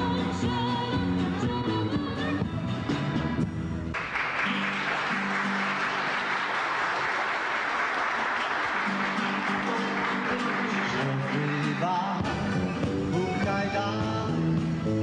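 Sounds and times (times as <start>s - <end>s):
guitar-led music: 0.0s - 7.0s, 8.2s - 15.0s
applause: 3.9s - 12.4s.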